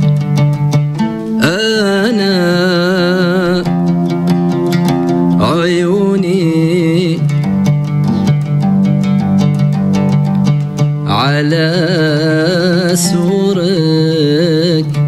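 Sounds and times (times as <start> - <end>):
plucked oud notes: 0.0 - 15.0
man singing with vibrato: 1.0 - 8.3, 11.0 - 15.0.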